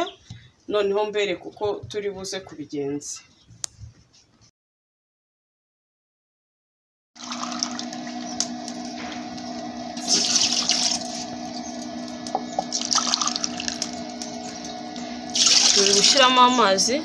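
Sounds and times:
water pouring into a metal pot: 7.2s - 8.3s, 10.0s - 11.1s, 12.6s - 16.2s
steady low hum: 7.2s - 17.0s.

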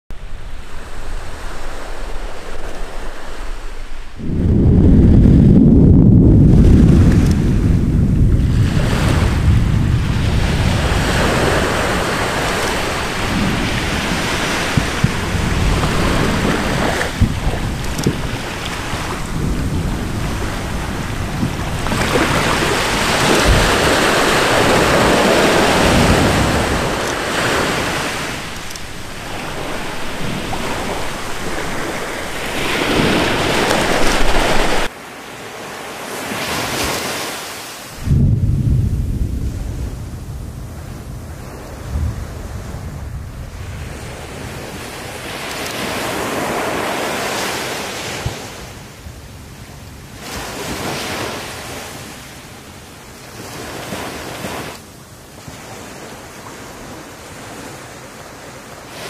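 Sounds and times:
volcanic eruption roaring: 0.3s - 34.9s, 38.0s - 44.7s.

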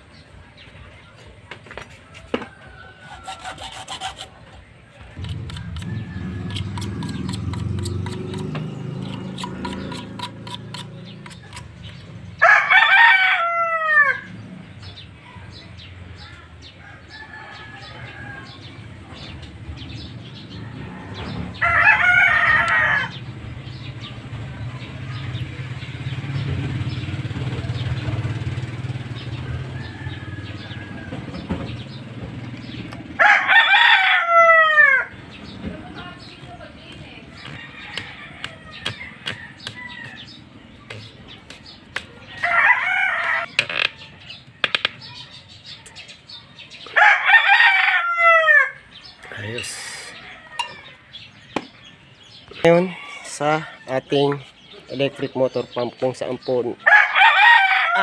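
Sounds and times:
rooster crowing: 2.1s - 4.2s, 5.2s - 7.7s, 12.4s - 14.4s, 16.8s - 18.8s, 20.5s - 23.2s, 29.4s - 31.5s, 33.2s - 35.2s, 37.4s - 40.4s, 42.3s - 44.3s, 46.9s - 48.9s, 49.9s - 51.2s, 56.8s - 58.0s.

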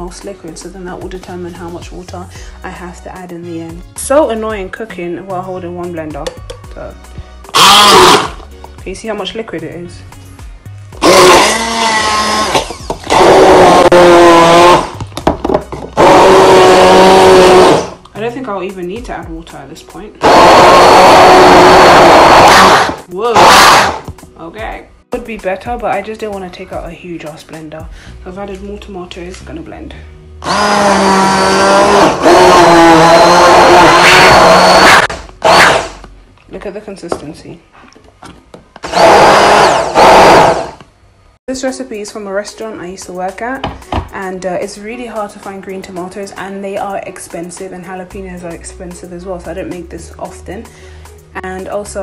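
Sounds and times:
stick blender motor whine: 7.5s - 8.5s, 11.0s - 15.0s, 16.0s - 18.0s, 20.2s - 24.1s, 30.4s - 36.1s, 38.8s - 40.9s.

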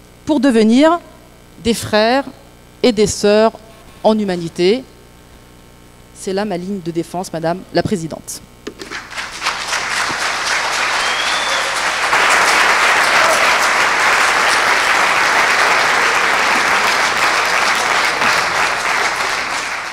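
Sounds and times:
audience applauding: 8.8s - 19.9s.

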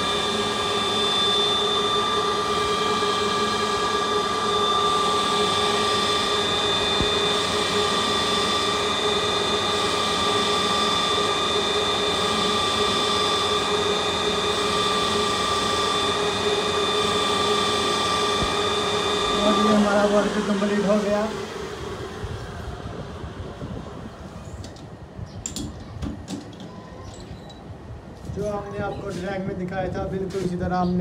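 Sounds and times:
metal lathe whining: 0.0s - 23.3s.

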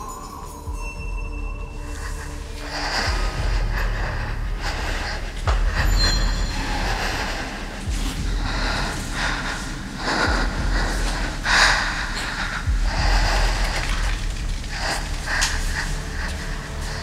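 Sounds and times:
person breathing: 0.0s - 17.0s
steady low rumble: 1.1s - 17.0s.

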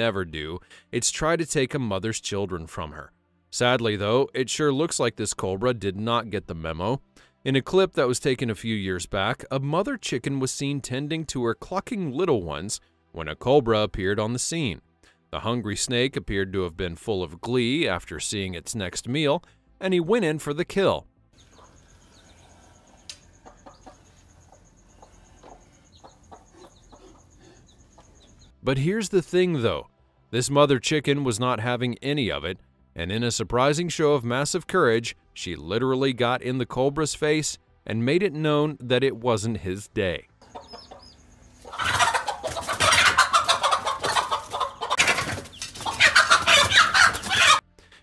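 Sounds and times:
chicks peeping: 21.4s - 28.5s, 40.4s - 47.6s
hen clucking: 21.4s - 28.5s, 40.4s - 47.6s.

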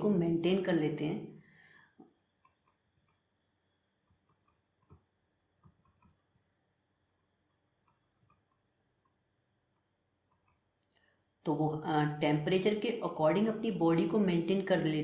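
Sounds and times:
faint ticks and soft taps: 2.0s - 3.3s, 4.0s - 6.3s, 7.8s - 9.2s.

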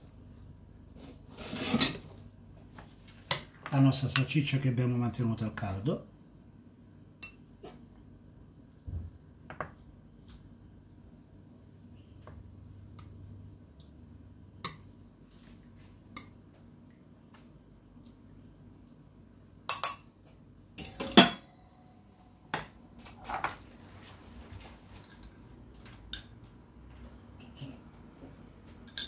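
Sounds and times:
metal tongs clinking on dishes: 20.8s - 21.4s.

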